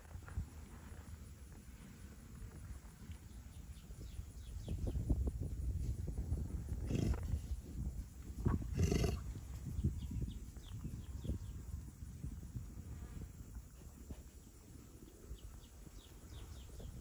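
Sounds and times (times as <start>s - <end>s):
bison grunting: 6.9s - 7.2s, 8.7s - 9.2s.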